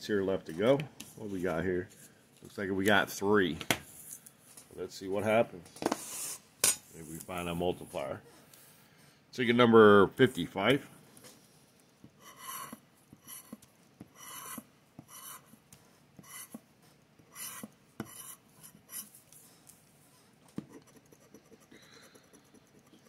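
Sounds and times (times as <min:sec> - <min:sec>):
scraping lottery ticket: 0:12.2 - 0:15.5.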